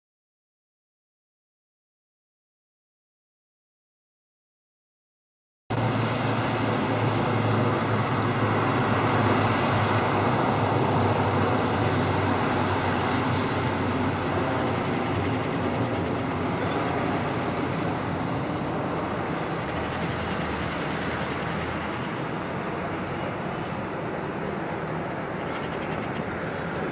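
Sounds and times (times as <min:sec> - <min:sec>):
distant train rumbling: 0:05.7 - 0:26.9.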